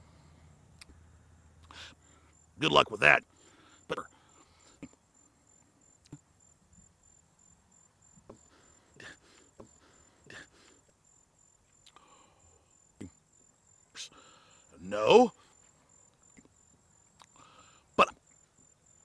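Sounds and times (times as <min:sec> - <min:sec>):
crickets chirping: 0:00.0 - 0:19.0.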